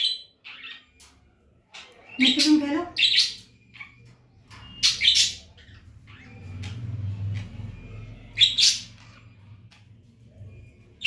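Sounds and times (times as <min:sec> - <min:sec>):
parakeet squawks: 0:00.0 - 0:09.8
faint bird chirps: 0:00.0 - 0:11.0.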